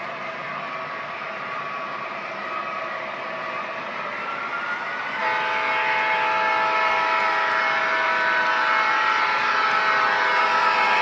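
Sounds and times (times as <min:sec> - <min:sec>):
model locomotive rumbling on track: 0:05.2 - 0:11.0
model train air horn: 0:05.2 - 0:11.0.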